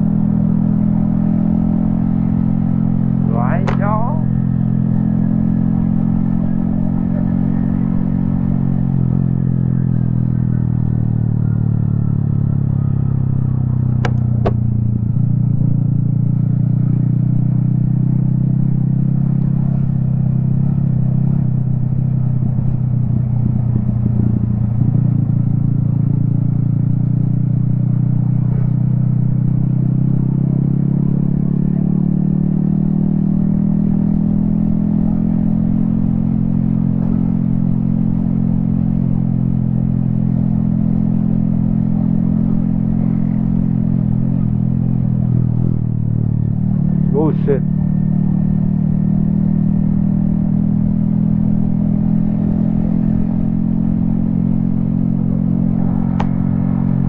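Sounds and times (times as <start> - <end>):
motorcycle engine running: 0.0 - 57.0
sharp clicks: 14.0 - 14.6.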